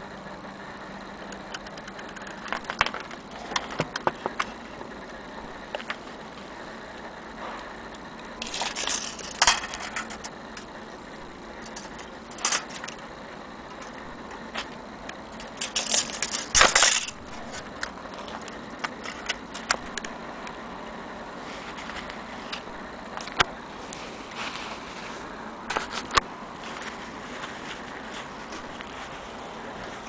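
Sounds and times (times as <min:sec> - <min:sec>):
clock movement clattering: 0:07.9 - 0:20.2.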